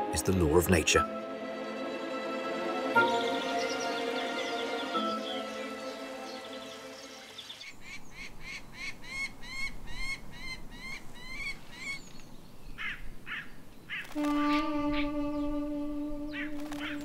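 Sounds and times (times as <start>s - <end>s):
soft music: 0.0s - 7.6s, 14.2s - 17.0s
falcon calling short rising notes: 14.0s - 17.0s
short falling bird calls: 16.3s - 17.0s.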